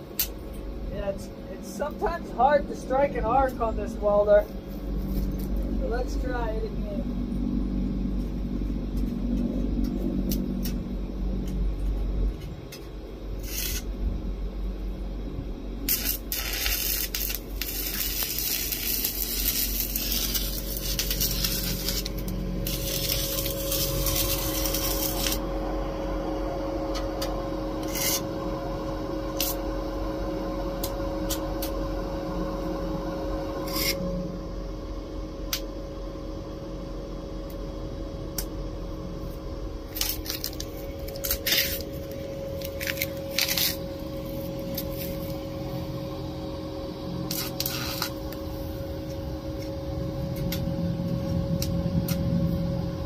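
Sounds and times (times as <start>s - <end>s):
steady hum: 0.0s - 53.0s
welding arc crackling: 13.2s - 14.9s, 15.8s - 26.0s, 26.9s - 32.0s, 39.8s - 52.6s.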